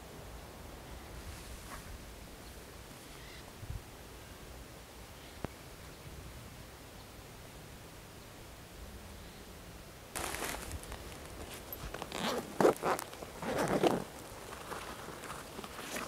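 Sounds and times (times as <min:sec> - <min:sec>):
fabric rustling: 0:10.2 - 0:16.0
zipper rasping open: 0:11.4 - 0:14.2.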